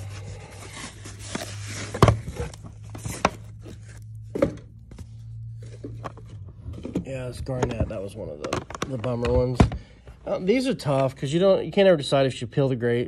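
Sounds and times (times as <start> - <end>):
cardboard box and packing rustling: 0.0 - 8.3
low steady hum: 0.0 - 13.0.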